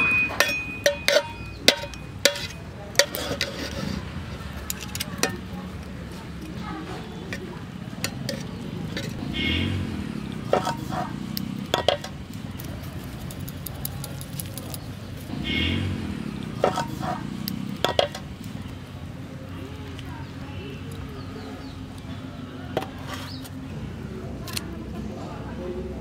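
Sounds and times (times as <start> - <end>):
metal clinks against cooking pot: 0.0 - 3.4.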